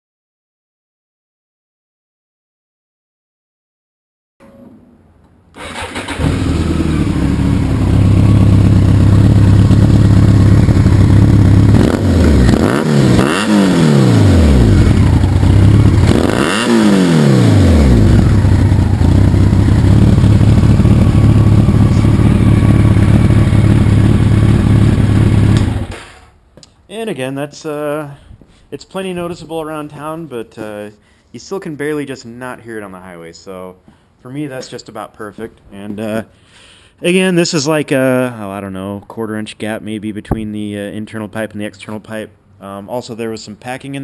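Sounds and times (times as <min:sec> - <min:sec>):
motorcycle engine idling and revving: 0:05.6 - 0:26.2.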